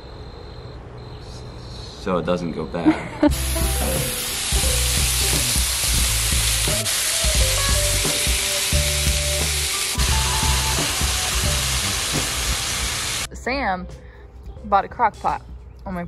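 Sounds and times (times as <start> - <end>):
meat sizzling in a skillet: 3.3 - 13.3.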